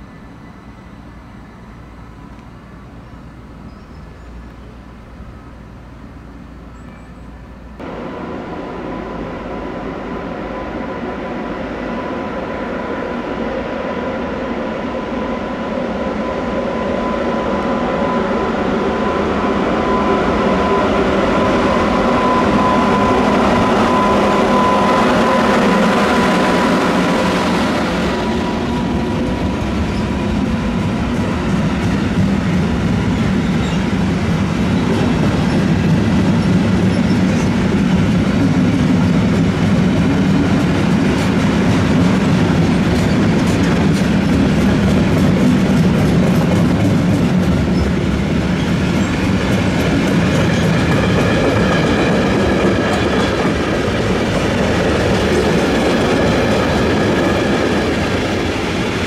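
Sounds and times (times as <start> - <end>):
electric train rolling: 6.1 - 59.0
thin steady whine: 7.8 - 12.6.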